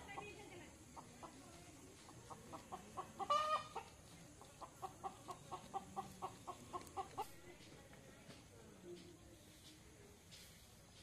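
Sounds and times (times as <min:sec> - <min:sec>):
chicken clucking: 0:00.0 - 0:07.7.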